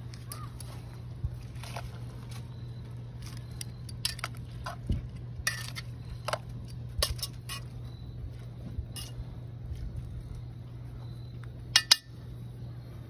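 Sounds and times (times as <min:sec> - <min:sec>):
metal tongs clinking on cast iron pot: 0:03.6 - 0:04.8, 0:05.4 - 0:07.7, 0:09.0 - 0:09.2, 0:11.7 - 0:12.2.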